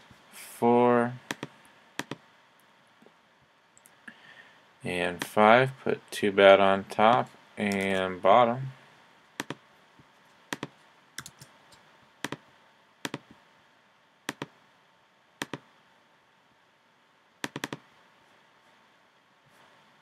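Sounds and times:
mouse and keyboard clicks: 10.5s - 11.5s, 14.3s - 14.5s, 17.4s - 17.8s.

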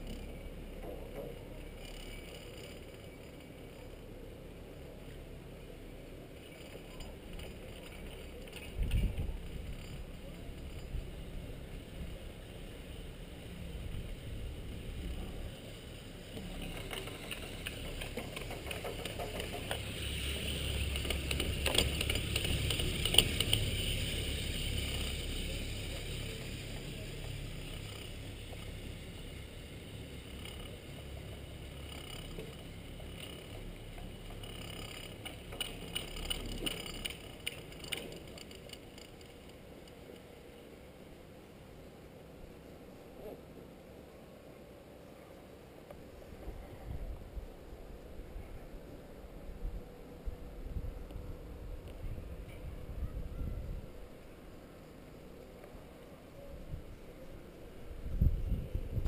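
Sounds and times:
chairlift rumbling: 0.0s - 43.6s
chair clattering over sheave wheels: 16.4s - 38.9s.

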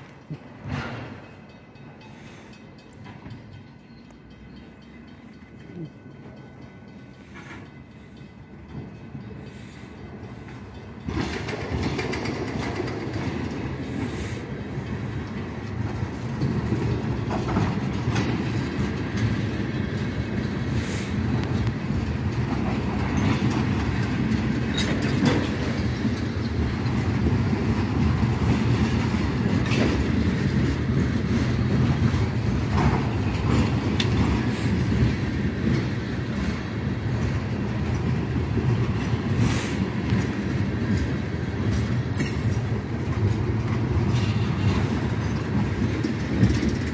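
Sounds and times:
clicks and clanks of train cars: 0.0s - 46.9s
train wheels rumbling on rails: 0.0s - 46.9s.

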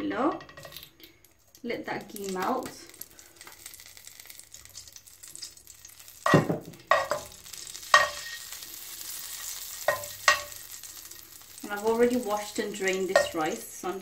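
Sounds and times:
faint sizzle of melting butter: 0.4s - 14.0s
metal spoon scraping metal pan: 6.3s - 8.6s, 9.2s - 10.6s.

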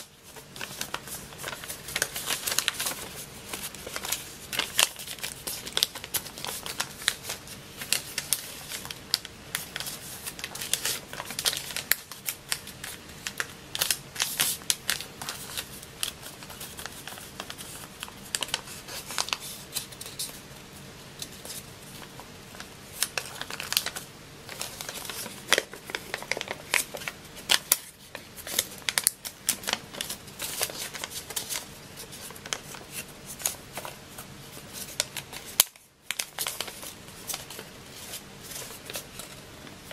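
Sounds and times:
paper rustling and crinkling: 0.0s - 39.9s
paper crackling as creased: 0.2s - 12.7s, 13.3s - 20.4s, 34.6s - 39.9s.

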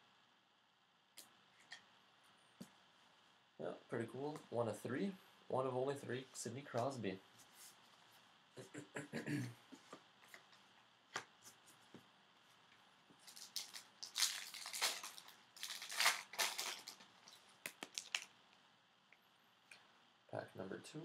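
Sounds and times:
foil wrapper crinkling: 13.2s - 18.3s.

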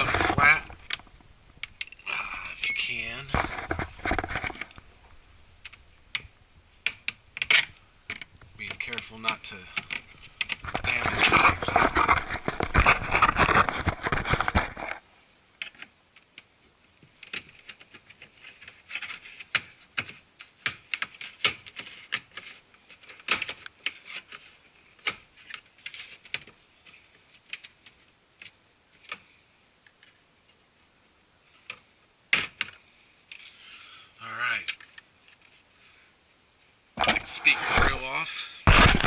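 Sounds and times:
plastic clicks and ticks: 5.6s - 10.6s
screwdriver scraping plastic: 8.6s - 15.0s.

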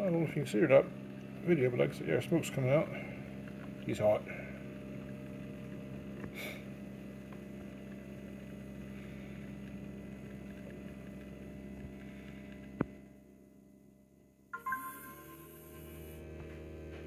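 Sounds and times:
coffee maker motor humming: 0.0s - 13.4s.

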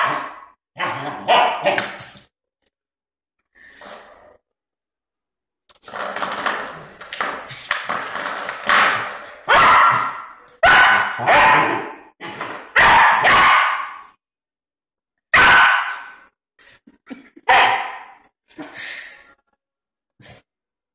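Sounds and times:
puppy barking: 0.0s - 2.0s, 9.5s - 12.0s, 12.8s - 14.1s, 15.3s - 16.2s, 17.5s - 18.2s.

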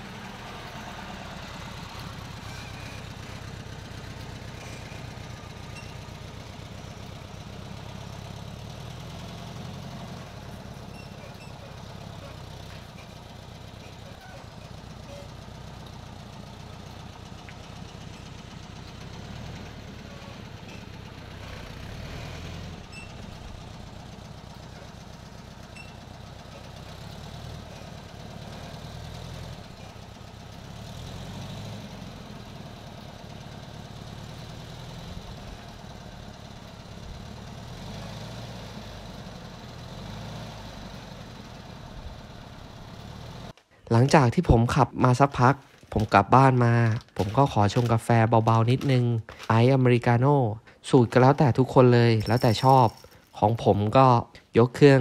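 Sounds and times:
engine running at low revs: 0.0s - 43.6s.

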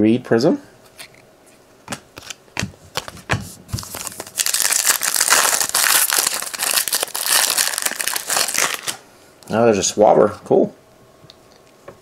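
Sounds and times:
cards clicking and tapping: 1.9s - 4.2s
foil wrapper crinkling: 3.7s - 9.0s.

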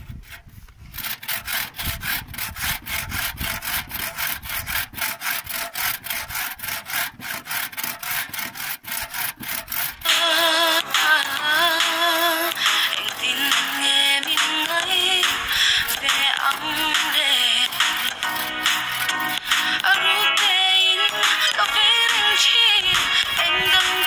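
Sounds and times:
hand saw cutting wood: 0.0s - 24.0s
music with singing: 10.0s - 24.0s.

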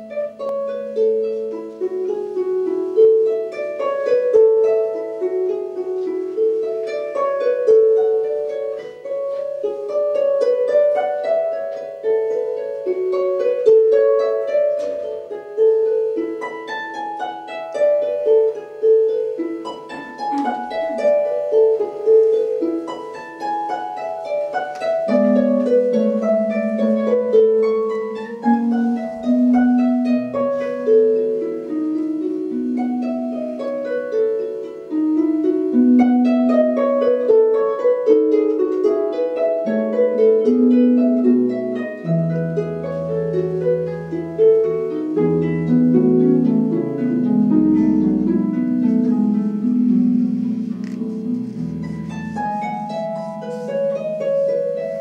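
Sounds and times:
harp arpeggios: 0.0s - 55.0s.

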